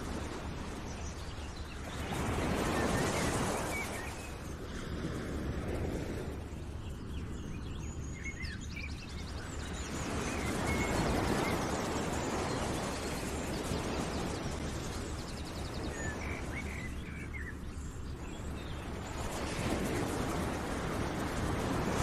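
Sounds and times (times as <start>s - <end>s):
steady rushing noise: 0.0s - 22.0s
small birds chirping: 6.5s - 20.2s.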